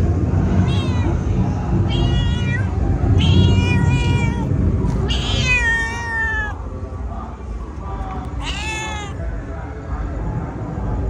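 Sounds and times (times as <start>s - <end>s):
low background rumble: 0.0s - 11.0s
cat meowing: 0.5s - 6.6s, 8.2s - 9.2s.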